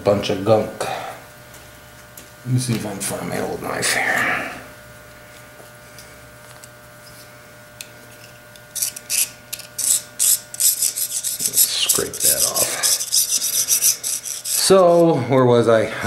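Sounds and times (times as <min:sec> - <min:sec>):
knife blade rasping on wire: 0:07.8 - 0:15.2.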